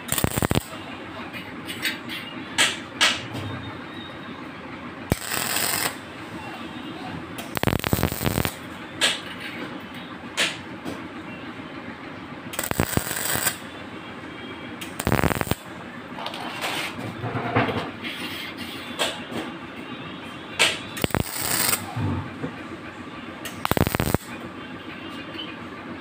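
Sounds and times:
arc welding crackling bursts: 0.0 - 0.7, 5.1 - 6.0, 7.4 - 8.6, 12.6 - 13.6, 14.8 - 15.6, 21.0 - 21.9, 23.5 - 24.3.

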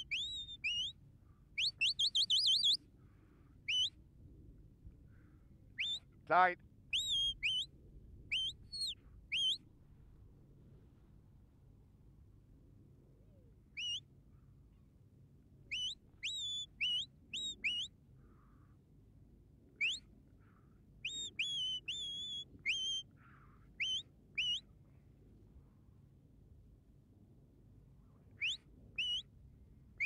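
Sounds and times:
shepherd's whistle notes: 0.0 - 1.0, 1.6 - 2.8, 3.7 - 3.9, 5.8 - 6.0, 6.9 - 7.7, 8.3 - 9.6, 13.8 - 14.0, 15.7 - 17.9, 19.8 - 20.0, 21.0 - 23.1, 23.8 - 24.7, 28.4 - 29.3.

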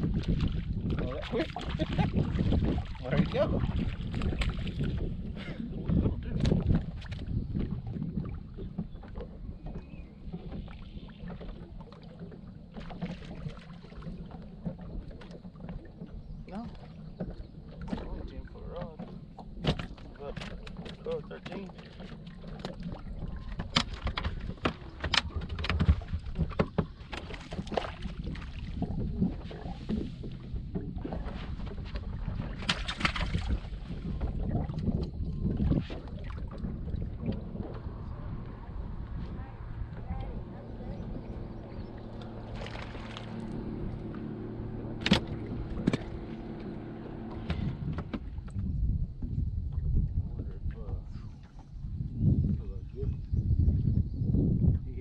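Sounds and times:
low wind rumble: 0.0 - 55.0
water slapping against hull: 0.0 - 55.0
motor hum: 22.1 - 49.2.

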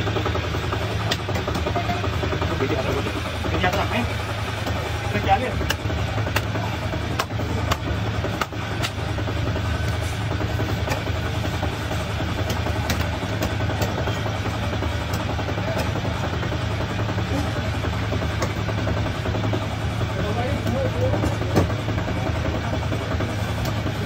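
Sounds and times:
low engine-like drone: 0.0 - 24.0
knife chopping fish on wood: 5.6 - 9.0.

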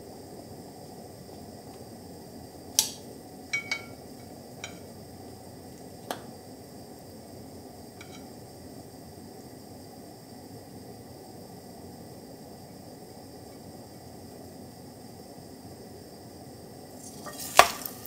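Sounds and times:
faint steady hiss: 0.0 - 18.0
bread clinking in glass bowl: 3.5 - 4.0.

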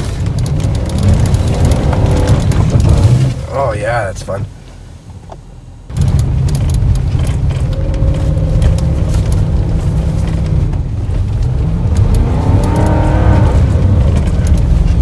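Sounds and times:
cab clicks and rattles: 0.0 - 3.4, 5.2 - 15.0
pickup engine revving: 5.9 - 15.0.

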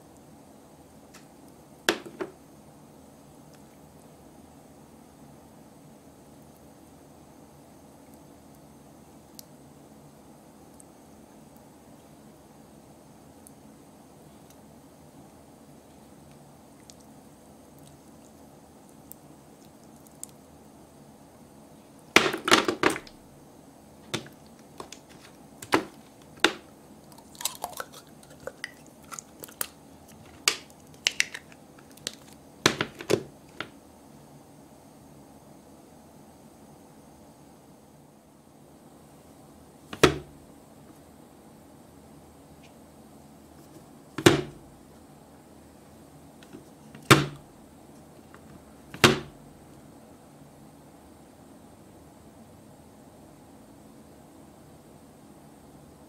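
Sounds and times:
plastic barrels knocking on a tray: 1.9 - 2.4, 32.7 - 33.7
slime squelching and popping: 24.2 - 33.7.

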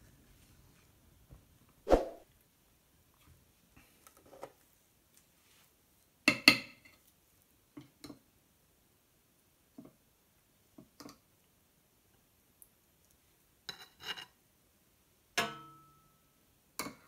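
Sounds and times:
fork tapping and scraping: 13.7 - 14.4.

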